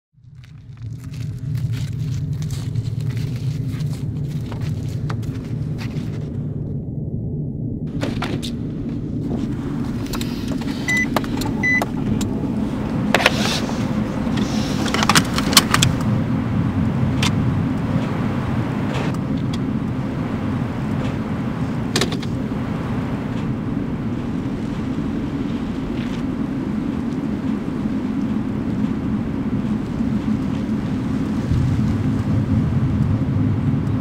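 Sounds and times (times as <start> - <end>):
low engine hum: 0.1 - 34.0
short high beeps: 10.9 - 11.8.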